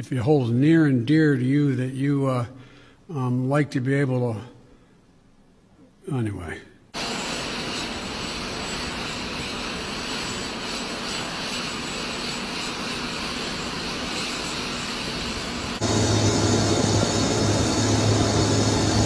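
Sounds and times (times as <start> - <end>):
faint high whine: 7.0 - 19.0
jet engines rushing: 7.0 - 19.0.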